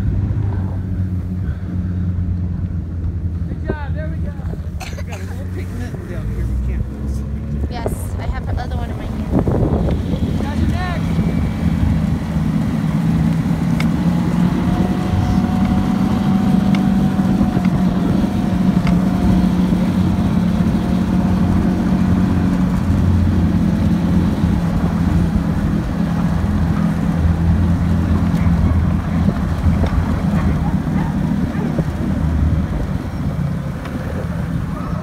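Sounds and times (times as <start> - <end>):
snowmobile engine droning: 0.0 - 35.0.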